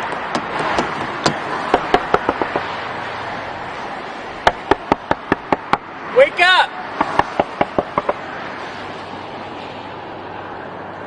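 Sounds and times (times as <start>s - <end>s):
highway noise rush: 0.0s - 11.0s
knocks on car door and window: 0.2s - 2.8s, 4.4s - 5.9s, 7.0s - 8.2s.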